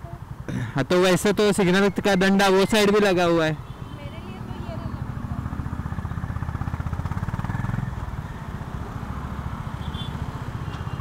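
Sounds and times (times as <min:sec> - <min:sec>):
motorcycle engine running: 0:04.2 - 0:09.4.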